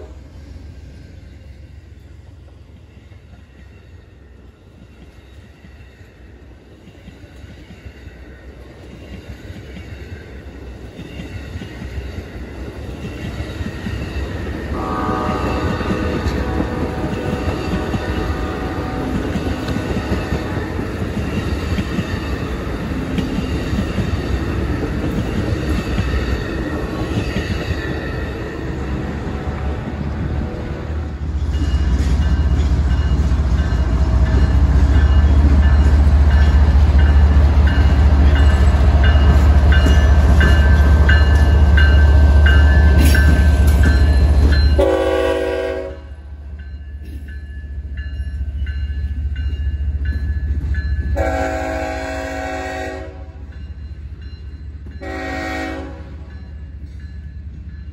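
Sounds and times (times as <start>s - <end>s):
train horn blast: 0.0s - 0.3s, 14.7s - 19.3s, 44.8s - 46.2s, 51.2s - 53.4s, 55.0s - 56.3s
diesel locomotive engine rumble: 0.0s - 57.9s
train wheels on rails: 0.0s - 57.9s.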